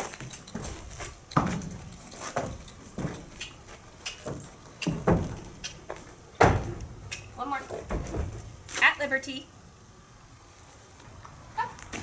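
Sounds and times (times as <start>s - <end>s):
hooves thudding on trailer ramp: 0.0s - 9.0s.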